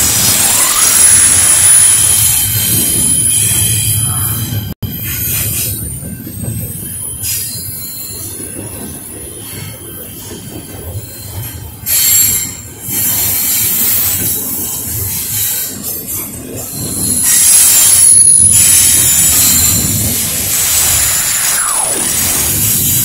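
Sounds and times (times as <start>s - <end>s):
high-pitched wheel squeal: 0.0s - 4.5s, 16.8s - 23.0s
train wheels rumbling on rail: 0.0s - 23.0s
hissing screeches: 16.9s - 23.0s.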